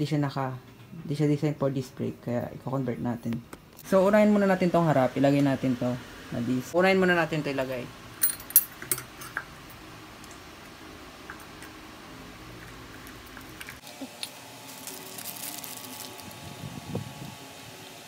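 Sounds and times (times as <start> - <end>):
plastic bag rustling: 14.1 - 17.3.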